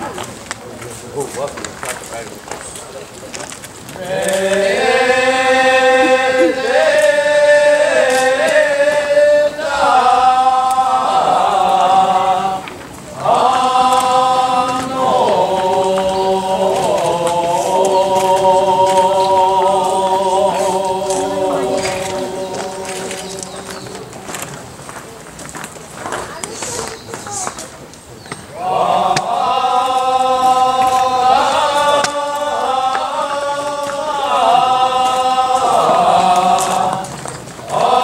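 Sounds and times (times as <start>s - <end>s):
group of voices chanting: 4.0s - 24.6s, 28.5s - 38.0s.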